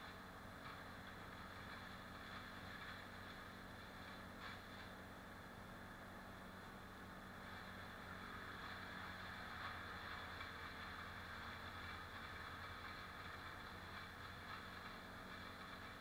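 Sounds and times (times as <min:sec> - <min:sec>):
distant chainsaw running: 0:07.4 - 0:16.0.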